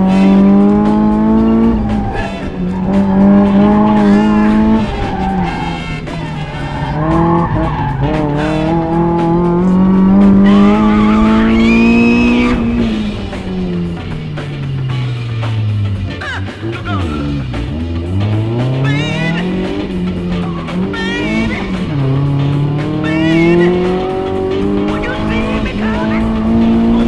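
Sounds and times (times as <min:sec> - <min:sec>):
car engine revving hard: 0:00.0 - 0:27.0
funk music: 0:00.0 - 0:27.0
tyre squeal: 0:00.1 - 0:09.1, 0:10.5 - 0:12.9.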